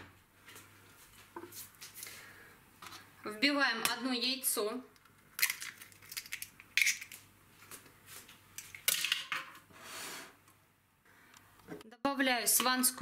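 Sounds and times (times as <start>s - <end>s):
egg cracking against glass bowl: 5.4s - 7.2s.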